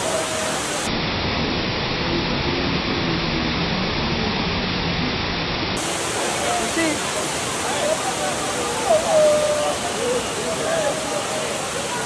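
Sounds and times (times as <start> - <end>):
waterfall roaring: 0.0 - 12.0
faint voices of people: 6.3 - 12.0.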